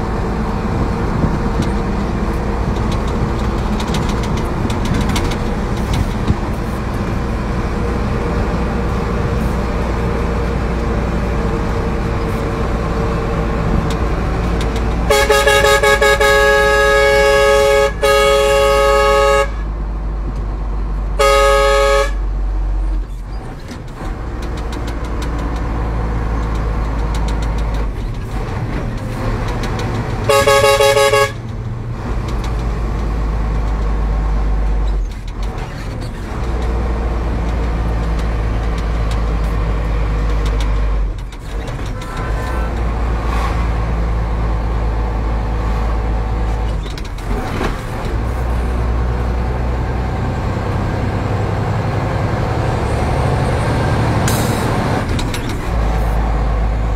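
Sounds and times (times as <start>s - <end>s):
truck engine rumbling: 0.0s - 56.9s
vehicle horn: 15.1s - 19.7s, 21.2s - 22.3s, 30.3s - 31.4s.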